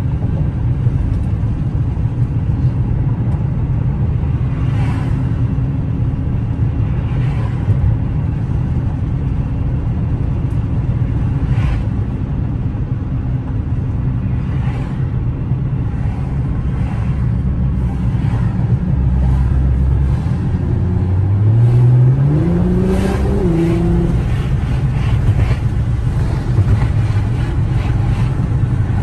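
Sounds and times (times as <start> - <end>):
road noise: 0.0 - 29.0
car engine accelerating: 16.0 - 29.0.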